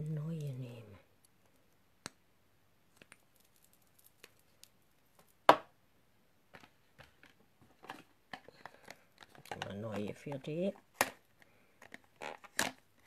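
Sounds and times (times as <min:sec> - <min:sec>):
small objects clicking and tapping: 0:02.9 - 0:05.7, 0:06.5 - 0:10.2.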